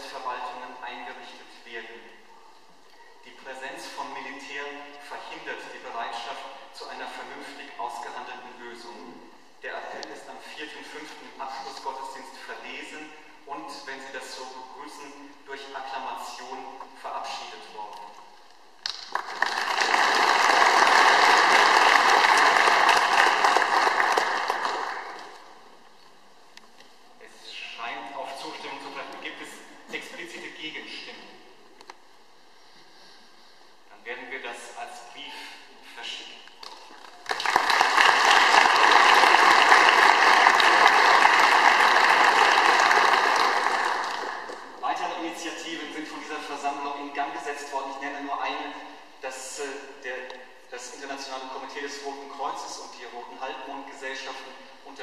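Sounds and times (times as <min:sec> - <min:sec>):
audience applauding: 0:18.8 - 0:25.4, 0:36.7 - 0:44.8.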